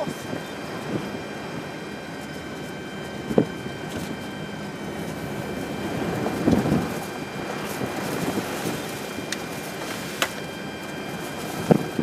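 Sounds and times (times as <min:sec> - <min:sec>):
storm wind and rain: 0:00.0 - 0:12.0.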